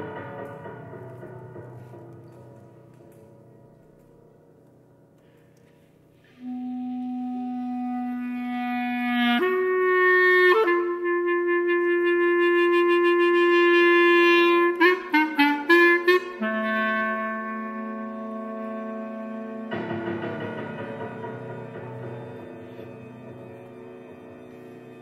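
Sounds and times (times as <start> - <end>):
clarinet playing: 6.3 - 19.8.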